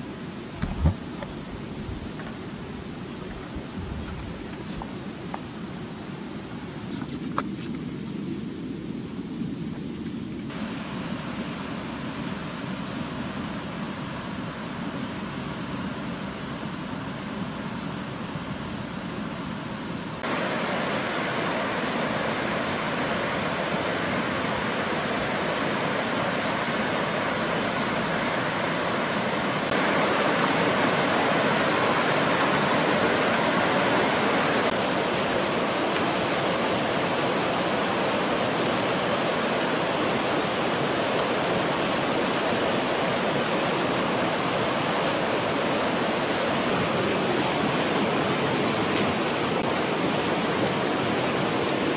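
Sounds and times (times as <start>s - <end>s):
river water rushing over rocks: 10.5s - 51.9s.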